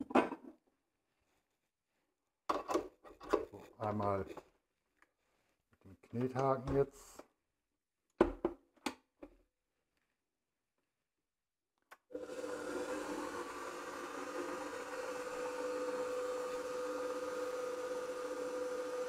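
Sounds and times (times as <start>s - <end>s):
stand mixer motor humming: 12.1s - 19.0s.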